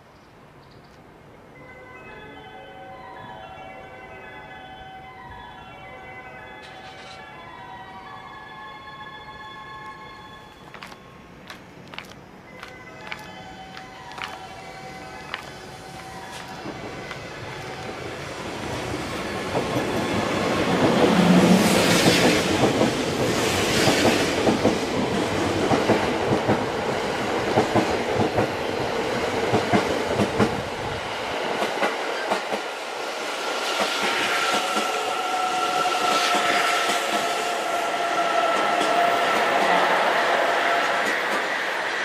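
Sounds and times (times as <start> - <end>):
high train whine: 1.1 - 42.0
deep train rumble: 10.5 - 42.0.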